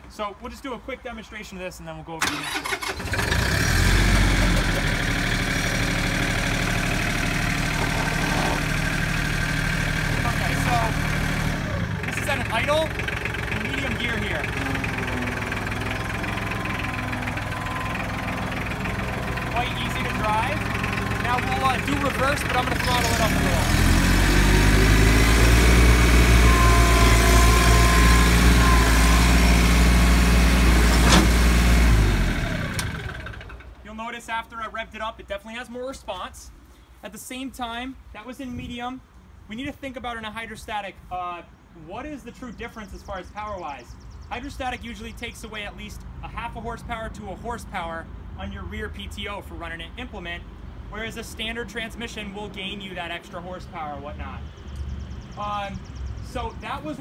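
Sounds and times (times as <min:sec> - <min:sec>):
diesel tractor engine idling: 0:02.2 - 0:33.9.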